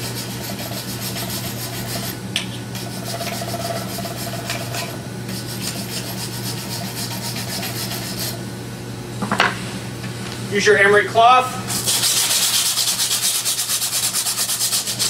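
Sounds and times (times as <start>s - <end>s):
wire brush scraping metal pipe: 11.7s - 15.0s.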